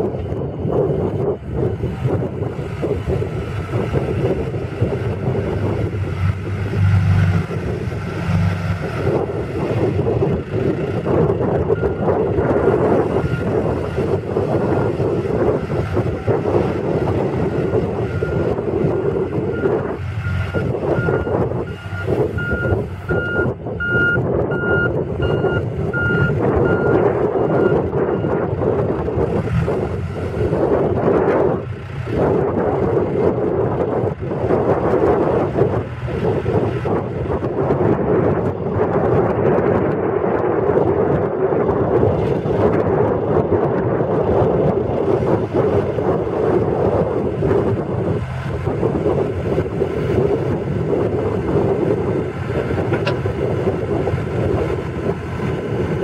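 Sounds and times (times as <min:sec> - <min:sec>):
diesel engine running: 0:00.0 - 0:56.0
backup alarm beeping: 0:20.6 - 0:28.3.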